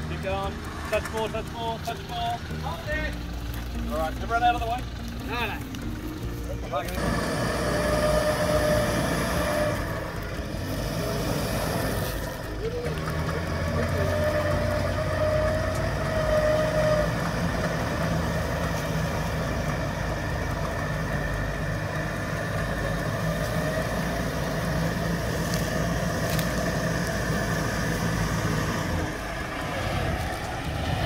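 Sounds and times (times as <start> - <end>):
electric winch whining: 0.0 - 31.0
engine running at low revs: 0.0 - 31.0.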